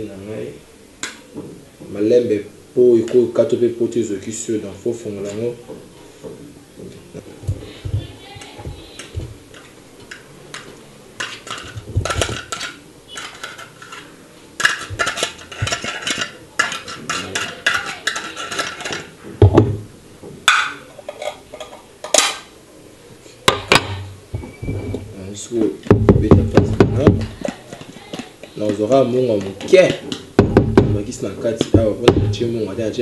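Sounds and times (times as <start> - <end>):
metal spoon scraping tin: 11.2 - 19.1
sharp knocks: 25.8 - 27.4, 29.8 - 32.5.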